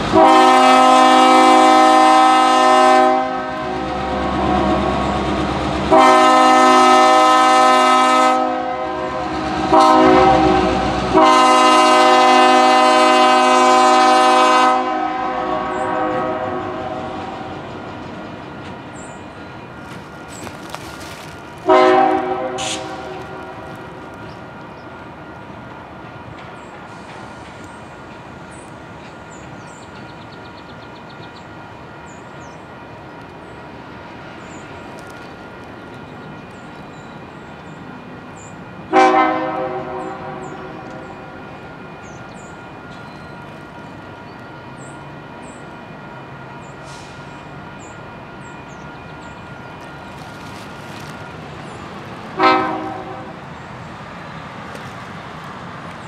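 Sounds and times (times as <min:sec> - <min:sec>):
locomotive engine rumble: 0:00.0 - 0:56.0
train wheel noise: 0:00.0 - 0:56.0
locomotive air horn: 0:00.1 - 0:05.2, 0:05.9 - 0:17.4, 0:21.6 - 0:24.0, 0:38.9 - 0:41.5, 0:46.8 - 0:47.3, 0:52.4 - 0:53.4.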